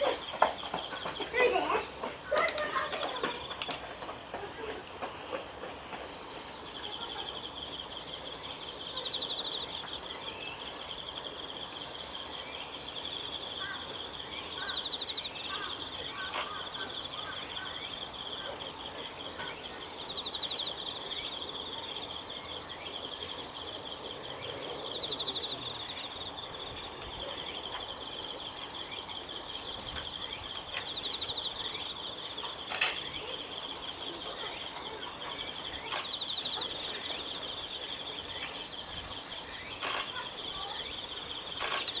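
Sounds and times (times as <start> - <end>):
sharp clicks: 41.6 - 42.0.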